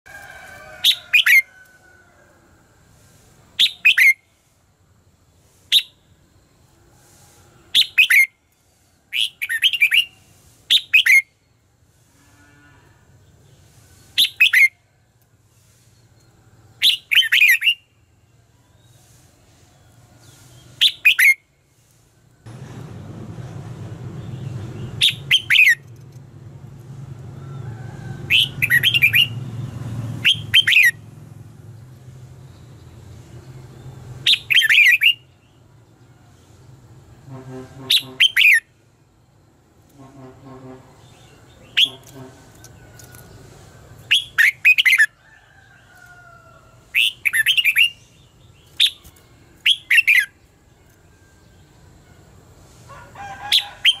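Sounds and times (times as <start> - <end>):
bird singing whistled notes: 3.6 - 4.3, 5.7 - 6.2, 7.7 - 8.4, 9.1 - 11.6, 14.1 - 14.8, 15.9 - 19.1, 19.8 - 21.5, 24.3 - 25.9, 28.3 - 29.4, 30.2 - 31.0, 33.8 - 35.6, 38.0 - 38.7, 41.2 - 42.1, 44.1 - 45.1, 47.0 - 51.7
bird singing whistled phrases: 9.1 - 11.3, 25.0 - 25.8, 34.3 - 35.3, 44.1 - 45.1, 47.0 - 48.0, 48.8 - 50.3.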